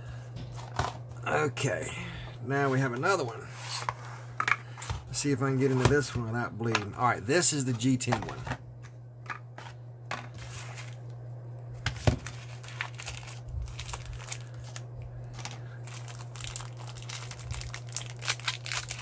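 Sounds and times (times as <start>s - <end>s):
wrapper crinkling and tearing: 11.9s - 19.0s.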